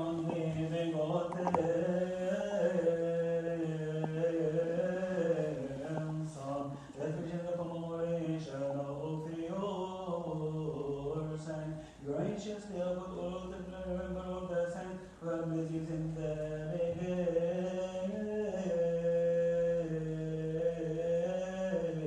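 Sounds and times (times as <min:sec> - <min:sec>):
men chanting a hymn: 0:00.0 - 0:22.0.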